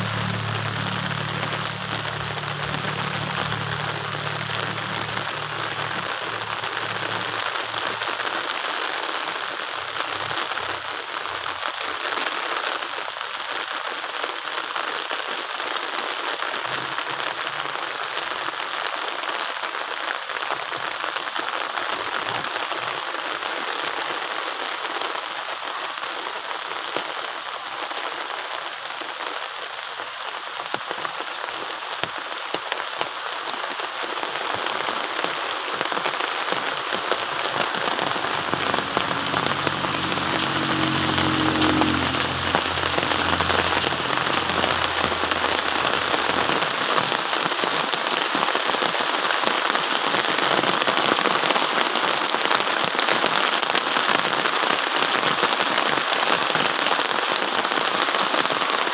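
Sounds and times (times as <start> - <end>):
faint low hum: 0.0 - 9.0, 36.9 - 47.1
steady rain falling: 0.0 - 58.9.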